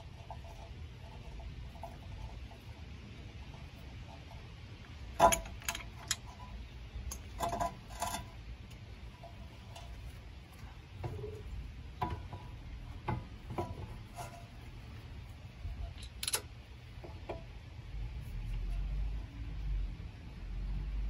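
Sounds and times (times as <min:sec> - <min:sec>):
metallic clinks and knocks: 0:05.2 - 0:06.4, 0:15.9 - 0:16.5.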